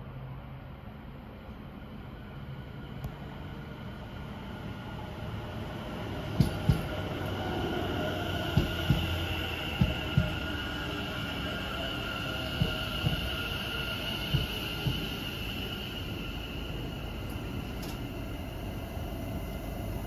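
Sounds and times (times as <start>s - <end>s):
electric train whine: 0.0s - 20.0s
train wheel clacks: 6.4s - 7.4s, 8.5s - 10.6s, 12.4s - 15.7s.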